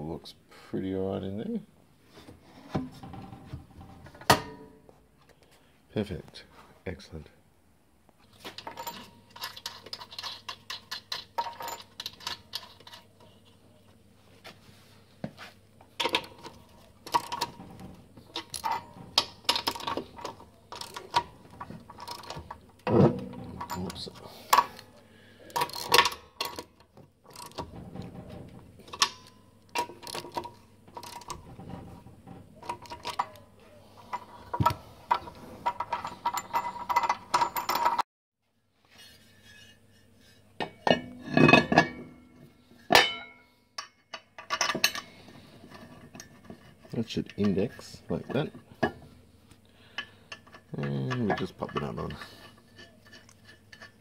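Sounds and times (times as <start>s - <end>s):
metal parts clicking and clinking: 8.4s - 13.5s, 15.9s - 38.0s, 40.6s - 49.0s, 49.9s - 54.0s.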